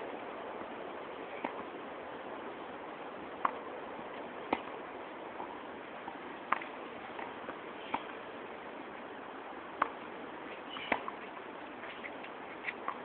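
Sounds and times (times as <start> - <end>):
tennis balls struck and bouncing: 3.4 - 3.6, 4.2 - 4.8, 6.4 - 8.2, 9.8 - 13.0.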